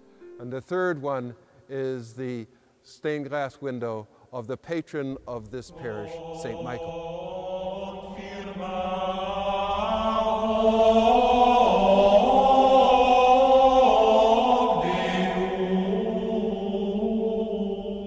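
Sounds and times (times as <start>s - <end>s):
choir singing sustained chords: 5.7s - 18.0s.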